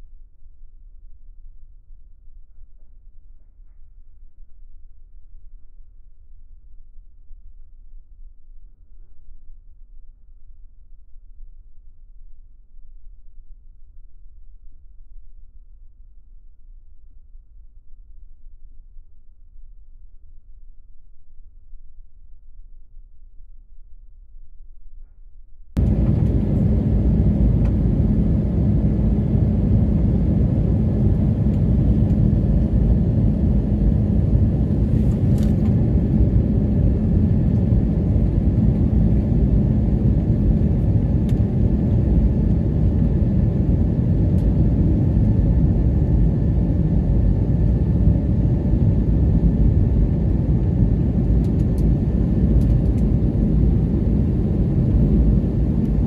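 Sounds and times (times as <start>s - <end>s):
jet cabin engine rumble: 25.8s - 56.0s.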